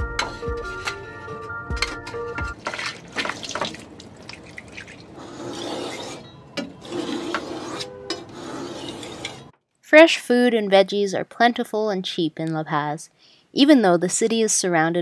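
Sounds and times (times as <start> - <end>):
background music: 0.0 - 2.6
clinks and wet sounds at sink: 2.6 - 5.2
knife scraping on sharpening stone: 5.2 - 9.5.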